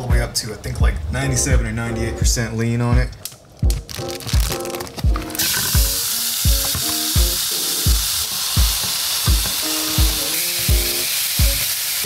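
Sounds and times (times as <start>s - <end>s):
music with steady beat: 0.0s - 11.7s
meat sizzling in oil: 5.4s - 12.0s.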